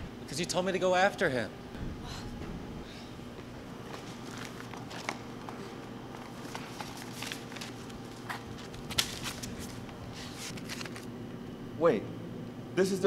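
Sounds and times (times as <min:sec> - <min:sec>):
steady low hum: 0:00.0 - 0:13.0
paper envelope crinkling: 0:06.2 - 0:11.1.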